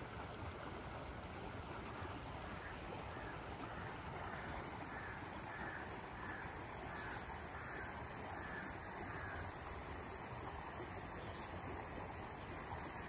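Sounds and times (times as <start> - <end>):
crow cawing: 2.6 - 9.4.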